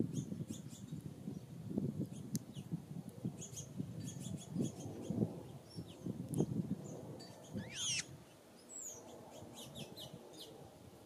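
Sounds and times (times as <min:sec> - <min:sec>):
songbirds chirping: 0:03.4 - 0:10.8.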